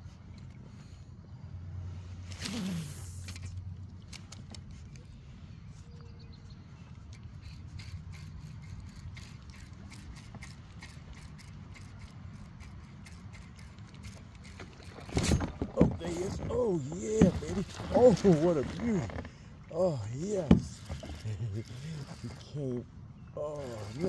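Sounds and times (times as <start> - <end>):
fishing reel clicking: 7.4 - 14.7, 23.6 - 24.0.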